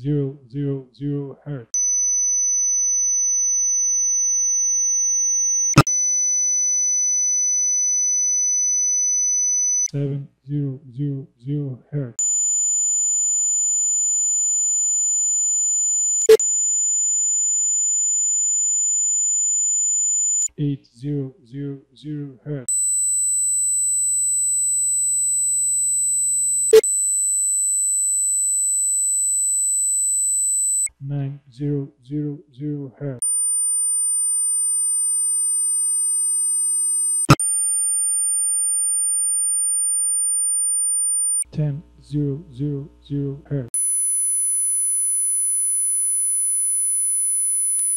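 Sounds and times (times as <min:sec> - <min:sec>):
high sine test tone: 0:01.8 - 0:09.9, 0:12.2 - 0:20.5, 0:22.7 - 0:30.9, 0:33.2 - 0:41.5, 0:43.8 - 0:47.9.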